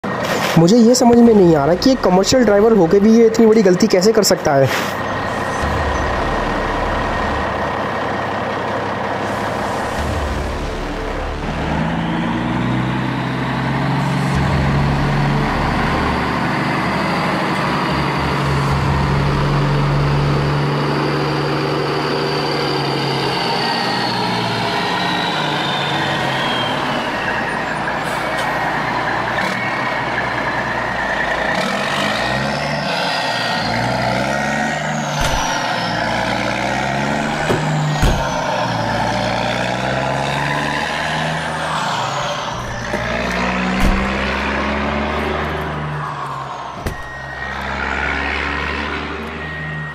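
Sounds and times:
engine running: 0.0 - 49.9
sharp knocks: 37.4 - 38.4.

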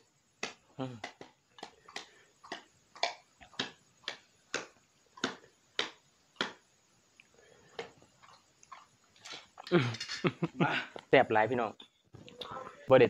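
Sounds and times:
open-mouthed chewing lip smacks: 7.2 - 9.7
faint mouth sounds: 12.1 - 12.9.

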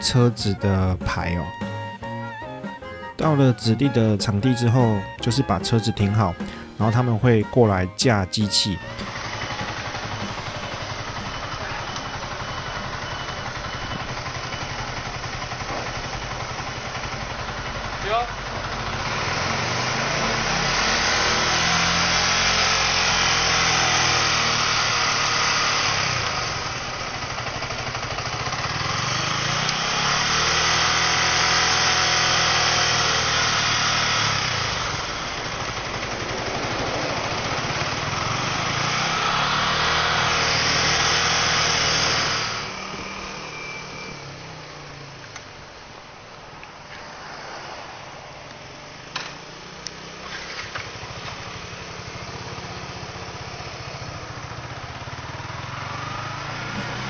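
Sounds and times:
motorcycle engine revving: 8.8 - 45.9, 49.0 - 57.0.

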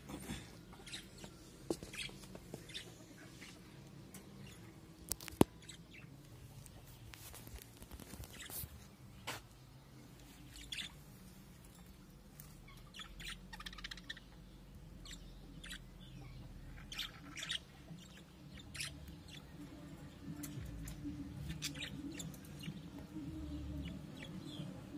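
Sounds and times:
budgerigars chirping: 10.5 - 11.0, 12.6 - 19.6.

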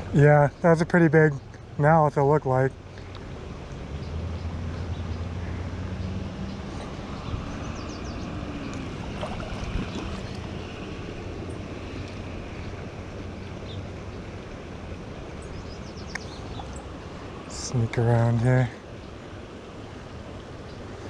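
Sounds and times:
creek water rushing: 2.7 - 21.0
low hum: 3.7 - 18.0.

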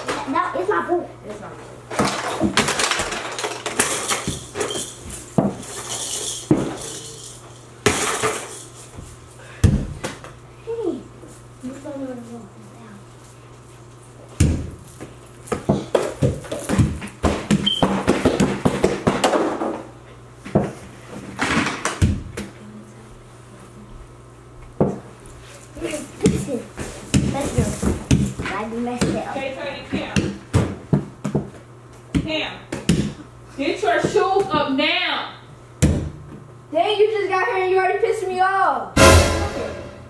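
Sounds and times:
plastic toys clattering on floor: 1.9 - 9.0.

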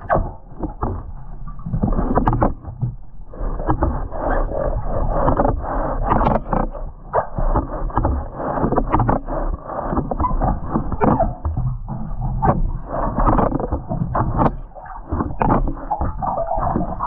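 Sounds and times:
muffled water sloshing underwater: 0.0 - 17.0
small knocks and clicks: 0.2 - 3.0, 7.4 - 9.3, 12.4 - 17.0.

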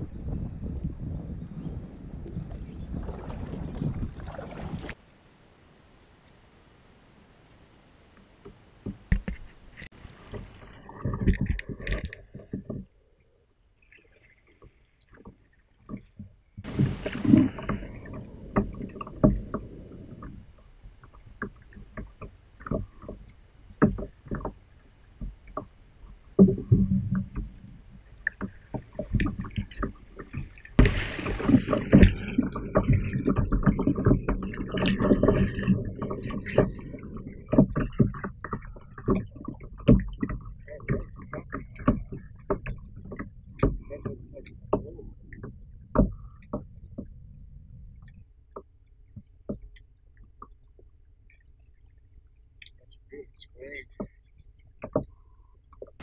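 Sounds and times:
low rumble: 0.0 - 5.0, 16.6 - 21.8
water lapping against hull: 1.5 - 5.1, 8.2 - 56.0.

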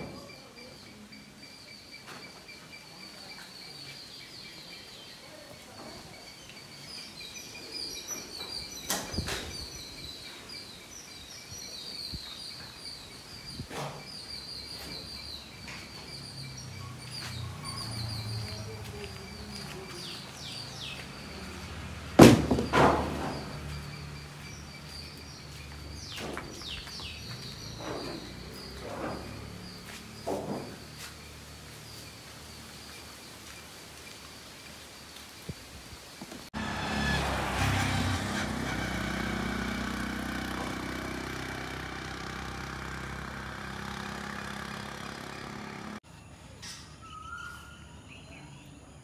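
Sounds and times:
loud thump: 22.2 - 23.6
sharp knocks: 22.2 - 23.6.

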